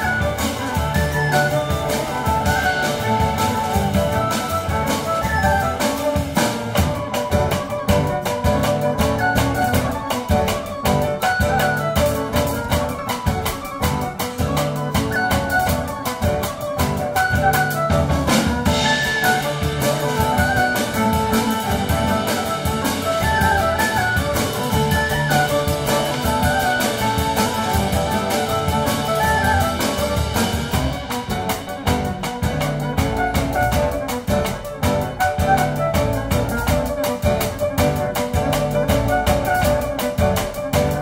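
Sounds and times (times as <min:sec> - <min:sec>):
drum kit: 0:00.0 - 0:41.0
fiddle: 0:00.0 - 0:41.0.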